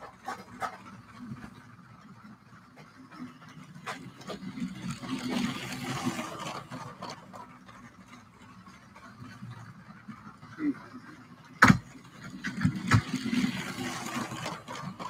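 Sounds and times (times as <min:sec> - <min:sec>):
toy train wheels clicking: 0:03.1 - 0:09.4, 0:11.4 - 0:15.0.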